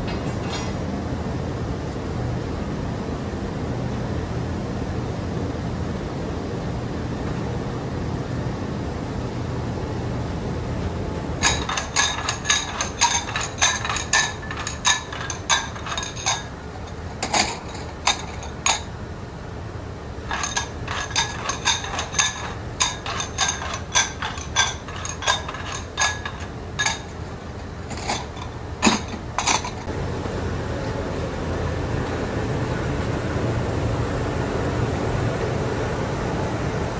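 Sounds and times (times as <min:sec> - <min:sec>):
low machinery rumble: 0:00.0 - 0:36.9
ceramic bowls clinking: 0:11.4 - 0:18.9, 0:20.3 - 0:29.9.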